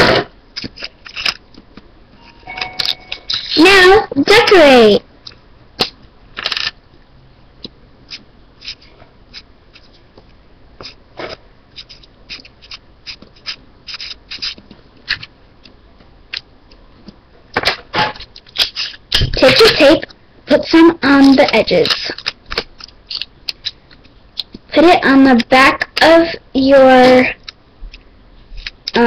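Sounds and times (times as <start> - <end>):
marker scratching on paper: 8.1 - 9.9, 10.8 - 14.6.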